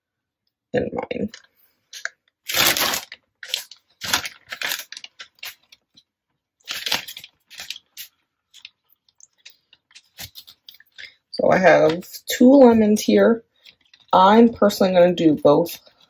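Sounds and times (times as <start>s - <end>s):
plastic bag crinkling: 2.0s - 6.0s, 6.6s - 11.2s.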